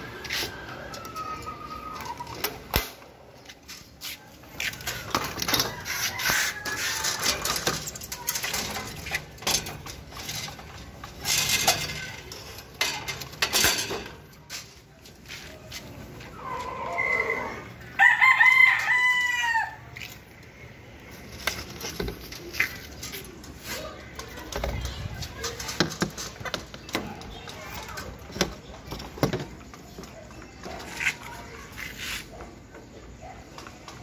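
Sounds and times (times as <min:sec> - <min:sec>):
rooster crowing: 0:05.6 - 0:07.5, 0:16.6 - 0:19.9.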